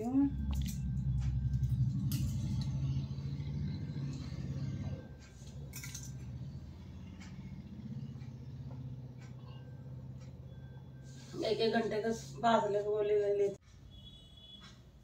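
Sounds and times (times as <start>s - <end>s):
steady low hum: 0.0s - 13.2s
light clicks and clinks: 5.3s - 6.4s.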